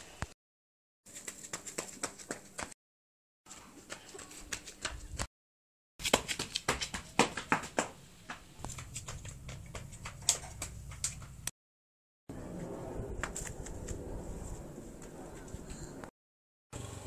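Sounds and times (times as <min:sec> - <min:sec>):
running footsteps on concrete: 0:01.1 - 0:02.8, 0:03.5 - 0:05.3, 0:06.0 - 0:11.5.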